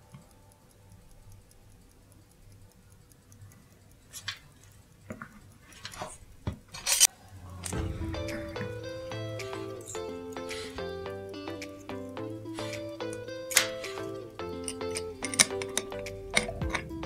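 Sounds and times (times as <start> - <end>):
clock ticking fast: 0.0 - 17.0
clock being handled: 5.1 - 7.1, 12.7 - 16.9.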